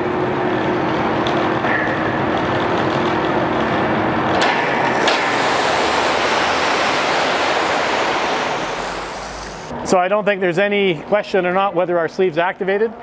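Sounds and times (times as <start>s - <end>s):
pumping equipment humming: 2.4s - 9.7s
high-pressure water jets hissing: 4.5s - 9.7s.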